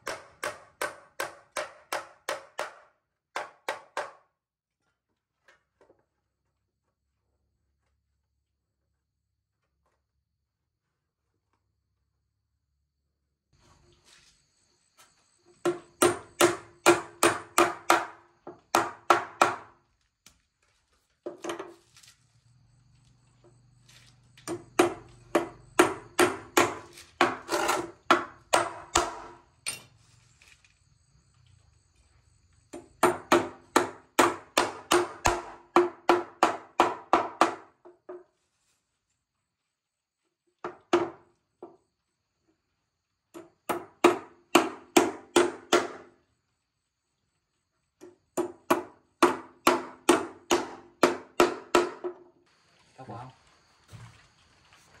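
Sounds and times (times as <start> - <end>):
tool striking wood: 0.0 - 4.3, 15.6 - 19.8, 24.4 - 29.8, 32.7 - 38.2, 43.4 - 46.1, 48.0 - 52.2.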